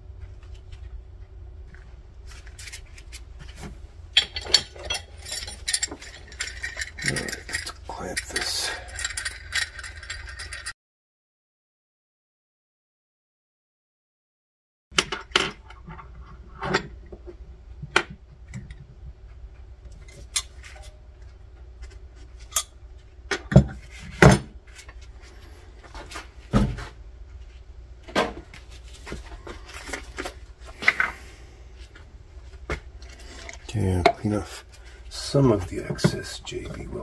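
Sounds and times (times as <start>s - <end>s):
steady low hum: 0.0s - 10.7s, 15.5s - 37.0s
metal clamp clinking and knocking: 4.2s - 10.7s.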